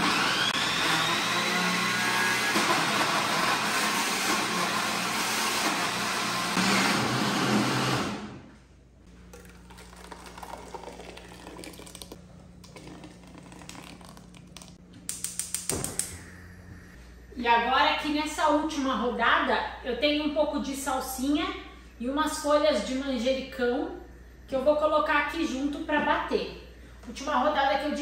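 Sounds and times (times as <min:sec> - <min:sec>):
food processor blending: 0:00.0 - 0:08.4.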